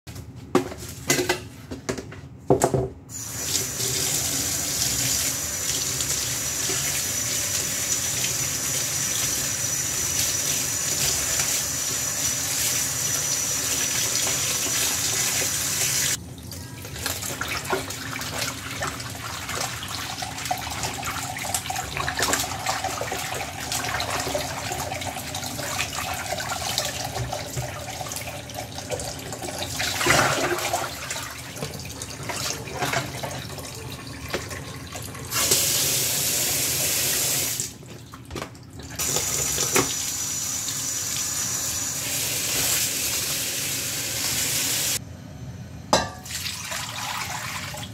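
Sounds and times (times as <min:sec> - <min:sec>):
water splashing and sloshing: 0:14.1 - 0:33.6.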